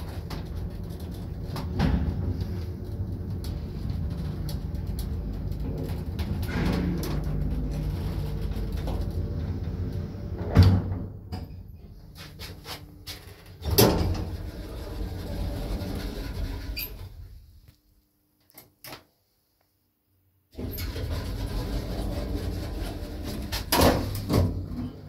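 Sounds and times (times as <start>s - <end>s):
elevator hum: 0.0s - 17.5s
elevator doors clunk: 0.1s - 11.6s.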